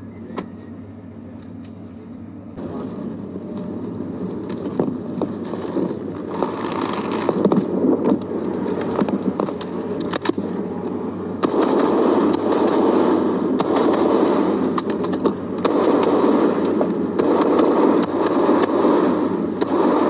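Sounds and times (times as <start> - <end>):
helicopter hum: 0.0 - 20.0
rifle shots: 4.3 - 10.5, 11.3 - 20.0.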